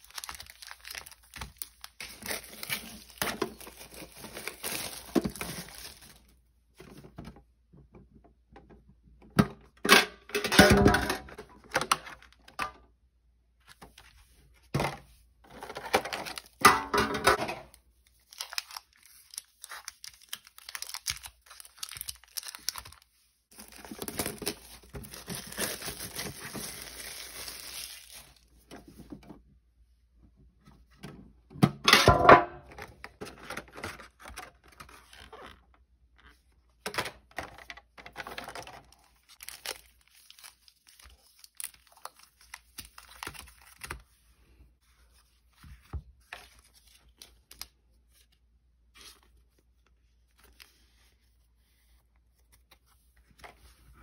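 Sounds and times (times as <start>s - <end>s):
wrappers tearing and crinkling: 0.0s - 6.3s, 18.1s - 28.5s, 38.3s - 44.0s.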